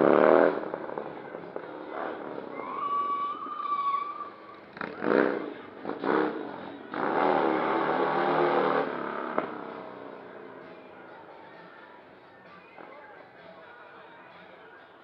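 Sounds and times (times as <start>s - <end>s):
motorcycle engine revving: 0.0s - 10.7s.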